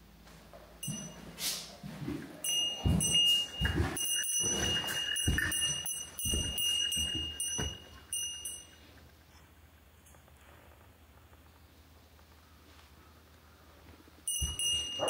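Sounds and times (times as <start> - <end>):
footsteps on wooden floor: 0.3 - 8.7, 14.3 - 15.0
steady high thin tone: 2.4 - 8.9.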